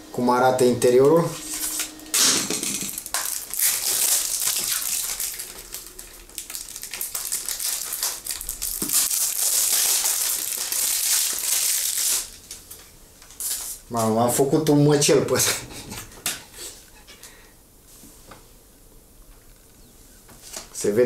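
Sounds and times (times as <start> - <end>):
plastic wrapping crinkling and tearing: 1.1 - 13.8.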